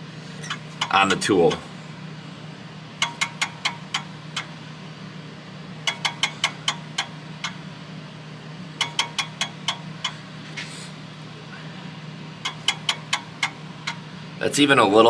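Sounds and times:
steady low hum: 0:00.0 - 0:15.0
knife ticking against steel fence: 0:03.0 - 0:04.5, 0:05.9 - 0:07.6, 0:08.8 - 0:10.2, 0:12.4 - 0:14.0.

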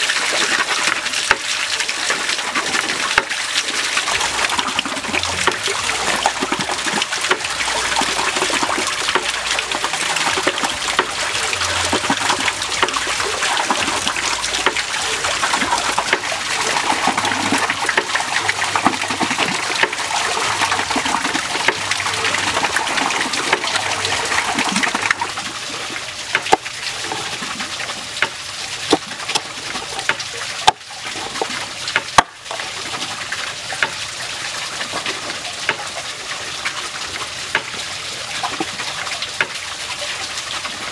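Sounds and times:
scattered clicks and taps: 0:04.0 - 0:25.2.

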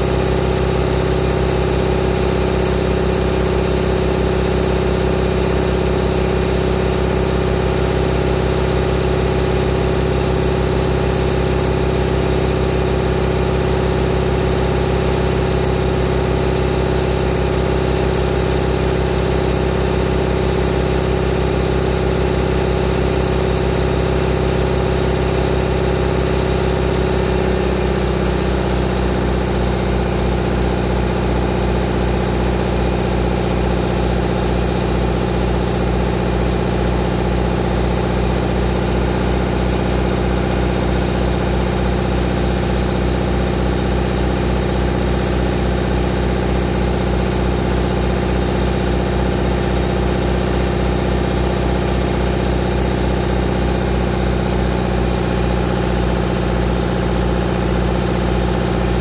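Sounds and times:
generator engine running: 0:00.0 - 0:59.0.

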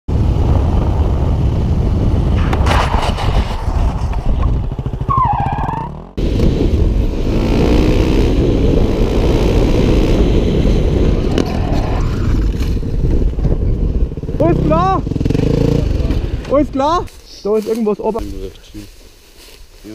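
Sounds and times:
motorcycle engines revving: 0:00.2 - 0:17.2.

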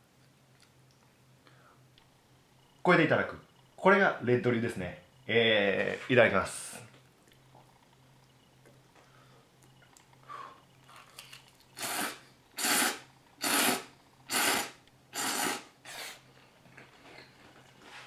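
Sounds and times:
noodles being slurped: 0:11.2 - 0:16.2.

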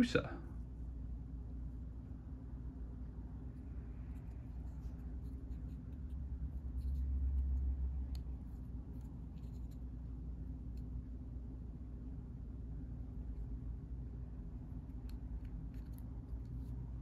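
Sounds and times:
plastic miniature ticks and rubs: 0:04.1 - 0:09.9, 0:14.9 - 0:17.0.

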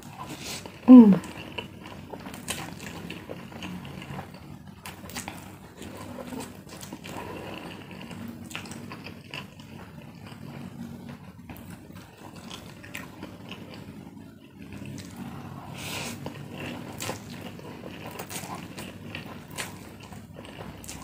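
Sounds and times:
person slurping noodles: 0:00.1 - 0:01.6, 0:15.2 - 0:18.9.

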